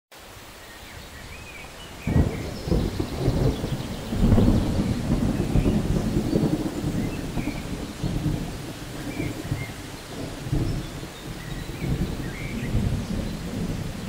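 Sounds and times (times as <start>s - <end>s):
rain falling: 0.1s - 14.0s
thunder rumbling: 1.9s - 14.0s.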